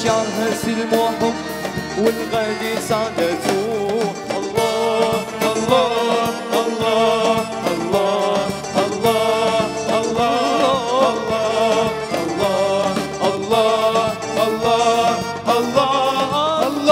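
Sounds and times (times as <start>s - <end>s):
instrumental backing with steady beat: 0.0s - 16.9s
man singing: 0.0s - 16.9s.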